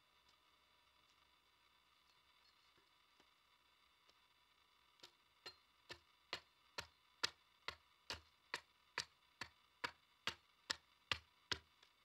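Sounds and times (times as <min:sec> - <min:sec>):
axe chopping wood: 0:05.5 - 0:11.8.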